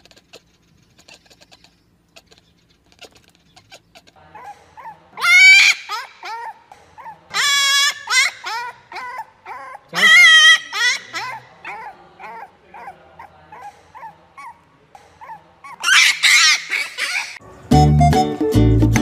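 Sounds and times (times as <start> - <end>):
puppy whining and yipping: 3.0 - 17.4
puppy howling: 3.7 - 17.4
music: 17.4 - 19.0.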